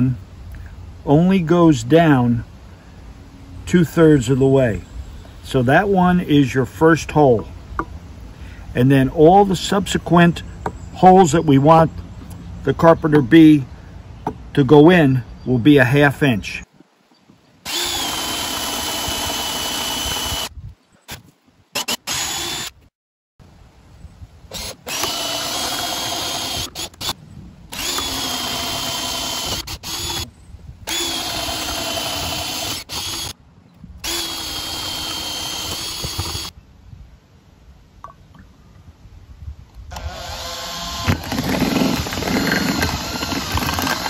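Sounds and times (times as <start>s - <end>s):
power drill boring into wood: 17.6s - 20.5s, 21.7s - 22.8s, 24.5s - 33.4s, 34.0s - 36.5s, 39.9s - 44.0s.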